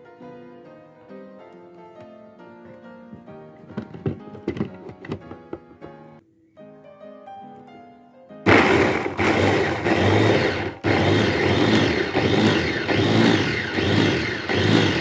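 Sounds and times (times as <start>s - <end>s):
food chopper motor grinding: 8.5s - 15.0s.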